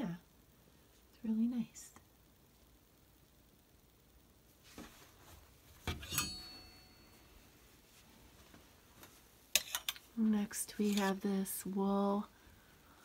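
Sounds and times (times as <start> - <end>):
clothes hangers clinking: 5.9 - 7.1, 9.6 - 10.1.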